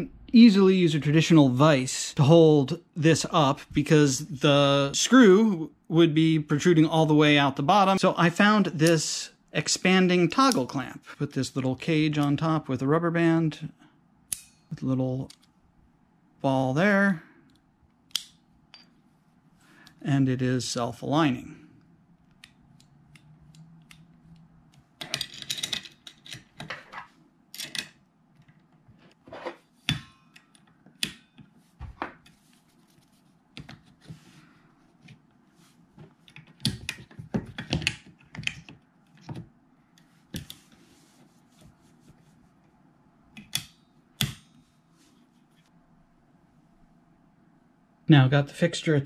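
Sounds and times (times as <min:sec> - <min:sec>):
clicks and clinks of metal parts: 0:25.0 - 0:26.9, 0:27.5 - 0:28.0.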